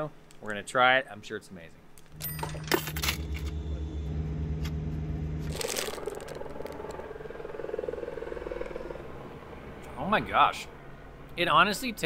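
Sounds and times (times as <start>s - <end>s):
coin clinking into wooden box: 2.1s - 3.4s
low hum: 2.1s - 10.0s
crunchy bite: 5.5s - 7.0s.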